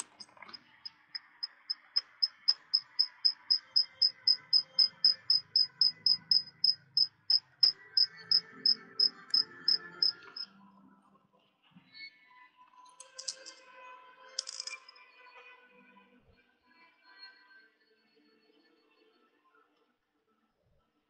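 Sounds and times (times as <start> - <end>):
short high-pitched pips: 1.2 - 10.5.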